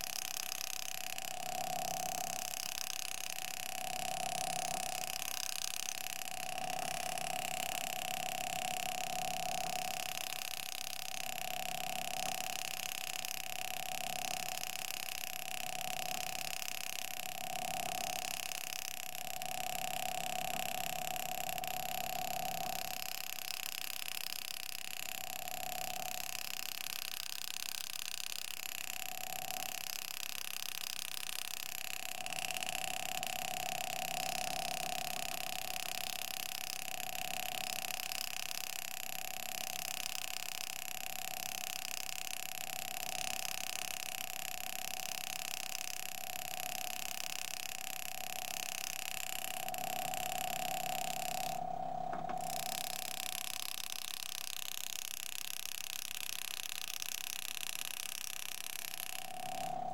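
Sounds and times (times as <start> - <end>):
engraving tool buzzing: 12.7 - 59.9.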